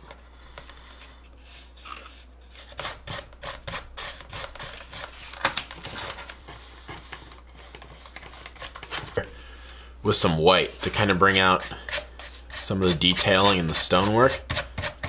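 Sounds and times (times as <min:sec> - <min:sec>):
paintbrush scrubbing on foam: 0:10.8 - 0:14.4.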